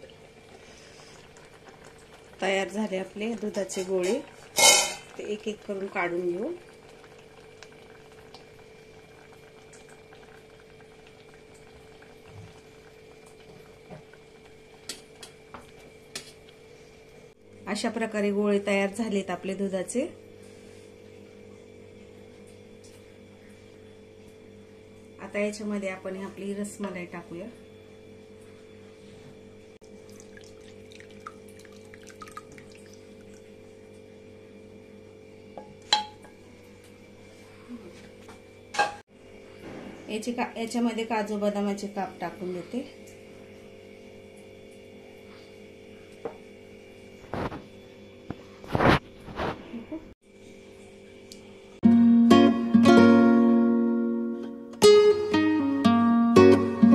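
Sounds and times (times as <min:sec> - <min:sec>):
drips and splashes: 0:00.0 - 0:15.4, 0:29.8 - 0:34.0
syrup bubbling at a boil: 0:00.0 - 0:17.0, 0:29.8 - 0:34.7
milk pouring into a bowl: 0:29.8 - 0:33.8
spoon clinking against pot: 0:35.9 - 0:36.2.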